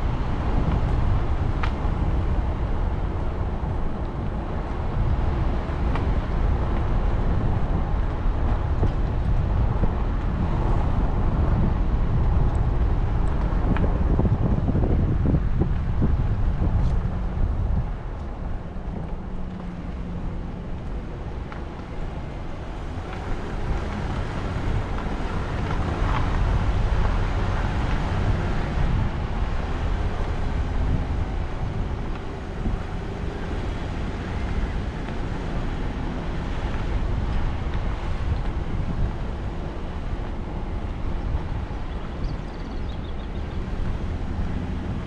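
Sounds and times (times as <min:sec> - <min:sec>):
road and engine rumble: 0:00.0 - 0:45.0
wind noise on microphone: 0:00.0 - 0:45.0.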